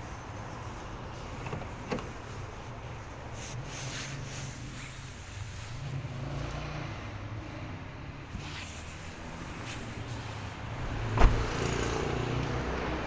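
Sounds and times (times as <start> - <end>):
car door unlatching click: 11.1 - 11.5.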